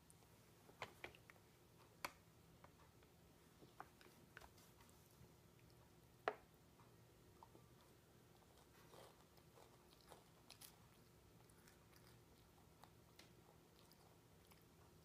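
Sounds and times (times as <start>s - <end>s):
toddler chewing: 7.3s - 15.0s.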